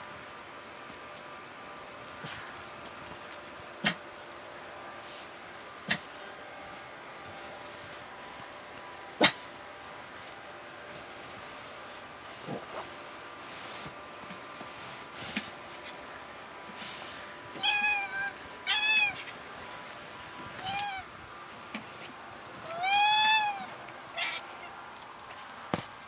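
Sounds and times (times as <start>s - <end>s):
cat meowing: 17.6s - 19.2s.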